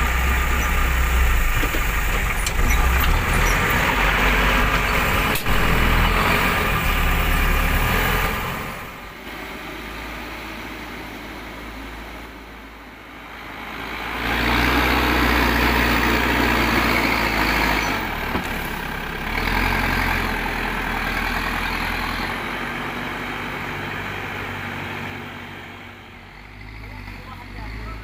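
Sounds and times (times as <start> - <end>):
loader bucket scooping soil: 0.0 - 8.8
diesel engine under load: 0.0 - 28.0.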